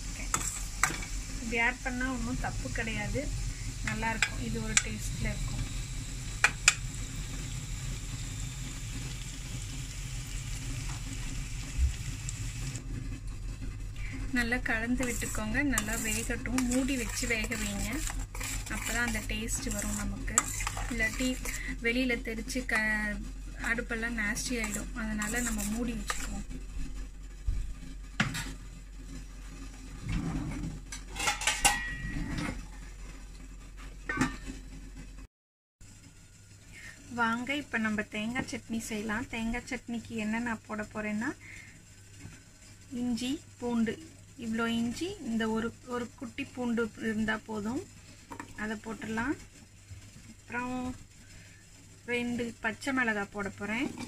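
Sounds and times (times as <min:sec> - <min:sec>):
onion and tomato sizzling in oil: 0:00.0 - 0:30.0, 0:35.8 - 0:54.0
steel kitchenware clinking: 0:31.0 - 0:32.3.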